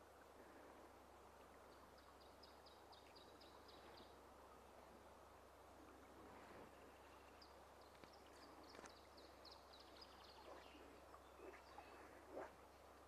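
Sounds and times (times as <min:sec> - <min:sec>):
faint bird chirps: 0:06.6 - 0:12.5.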